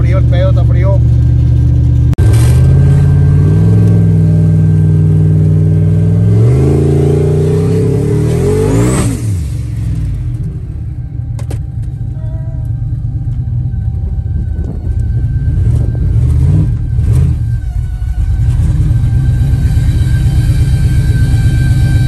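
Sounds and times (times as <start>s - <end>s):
truck engine under heavy throttle: 0.0s - 22.0s.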